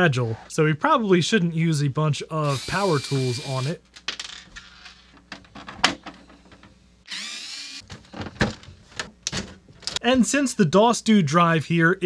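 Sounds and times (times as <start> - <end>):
power tool whir: 2.4 - 3.8, 7.1 - 7.8.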